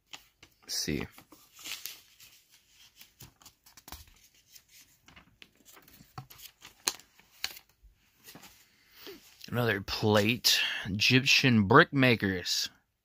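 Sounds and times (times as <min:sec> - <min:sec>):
pages turning: 0:00.0 - 0:09.6.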